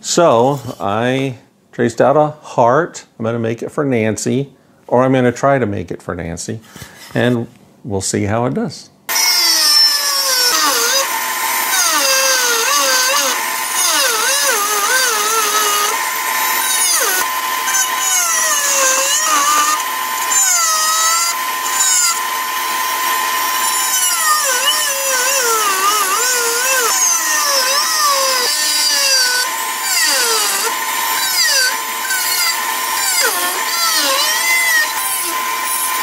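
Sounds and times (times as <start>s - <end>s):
oscillating tool cutting wood: 9.1s - 36.0s.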